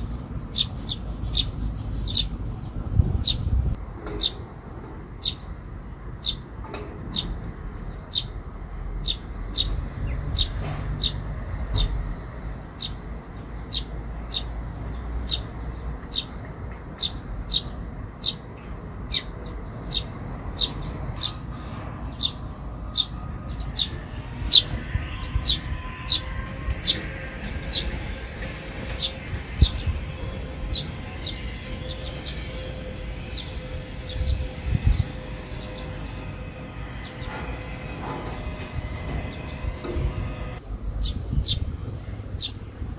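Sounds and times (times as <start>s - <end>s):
fledgling begging chirps: 0.0s - 41.6s.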